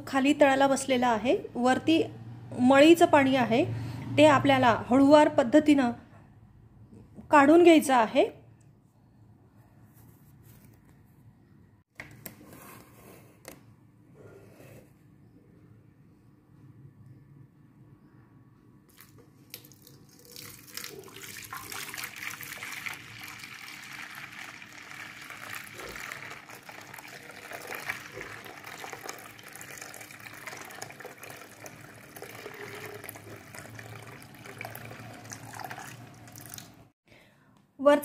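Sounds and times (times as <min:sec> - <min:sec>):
water pouring and splashing: 0:18.9 - 0:36.9.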